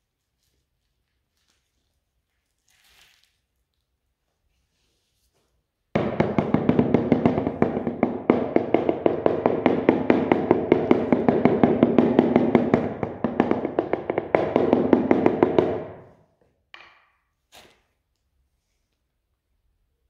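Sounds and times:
rubber mallet tapping tile: 6.0 - 16.1.

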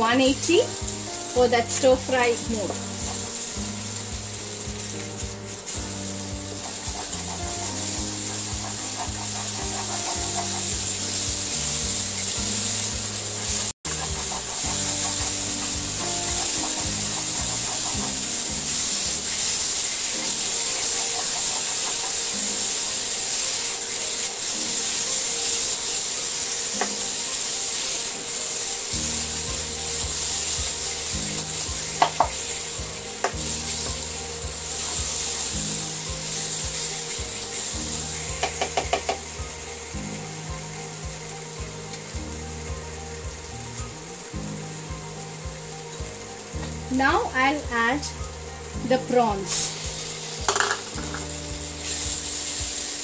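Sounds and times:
paste sizzling: 0.0 - 53.0
spatula scraping a pan: 6.5 - 12.9.

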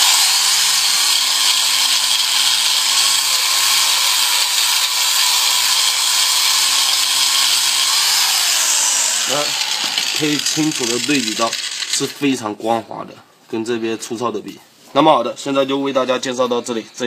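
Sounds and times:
angle grinder motor whine: 0.0 - 12.0
sanding pad hissing on wood: 7.3 - 11.9.

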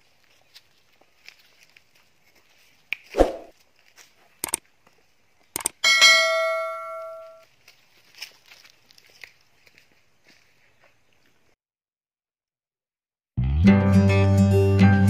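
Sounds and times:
sharp clicks: 4.4 - 4.6, 5.5 - 5.8
notification bell ding: 5.8 - 7.4.

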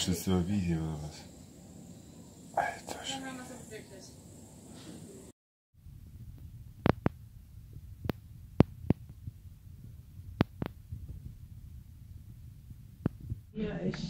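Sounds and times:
low steady rumble: 5.8 - 13.8.

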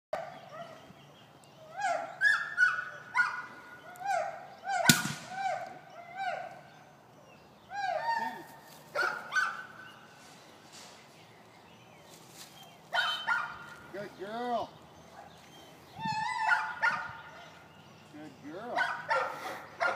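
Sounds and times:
gunshot: 4.9 - 5.4.

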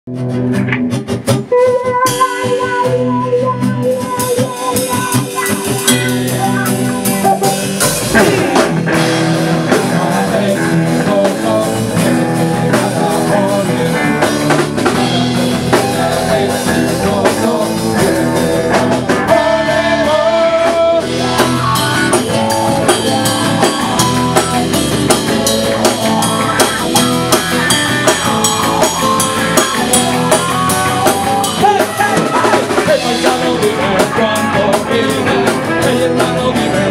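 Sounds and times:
drum kit: 0.1 - 36.9
electric guitar: 0.1 - 36.9
man singing into a microphone: 8.1 - 24.6, 27.6 - 36.9.

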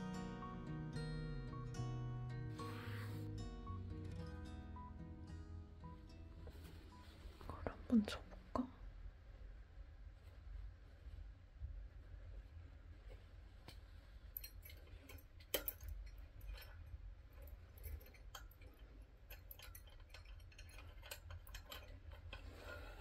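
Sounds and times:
low steady hum: 0.0 - 23.0
light clicks and taps: 13.1 - 23.0.

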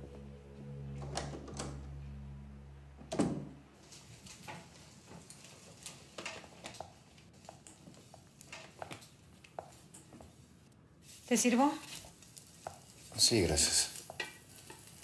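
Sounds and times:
low music drone: 0.0 - 3.8
door shutting: 0.9 - 2.0, 3.0 - 3.6.

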